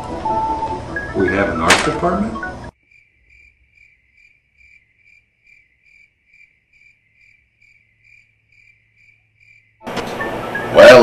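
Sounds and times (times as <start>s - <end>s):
crickets chirping: 2.7s - 9.9s.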